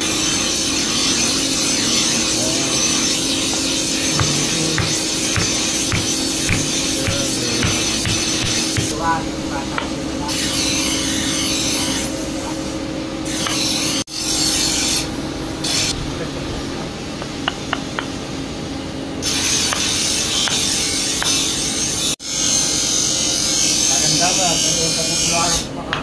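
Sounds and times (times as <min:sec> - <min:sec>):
steady low hum: 0:00.1 - 0:14.0
wood rasping against metal: 0:00.5 - 0:09.0.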